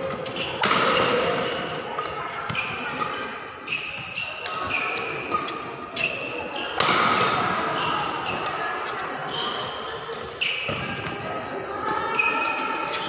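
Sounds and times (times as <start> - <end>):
racket hitting shuttlecock: 0.0 - 9.0
shoes squeaking on court: 0.0 - 11.2, 11.8 - 13.0.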